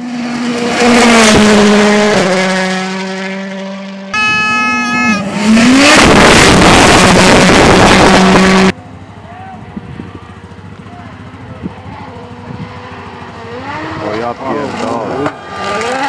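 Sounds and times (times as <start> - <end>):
rally car engines at full throttle: 0.0 - 16.0.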